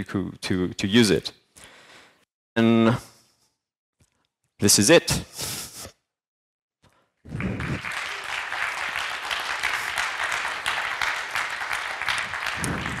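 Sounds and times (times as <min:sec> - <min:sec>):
audience applauding: 0:07.3 - 0:13.0.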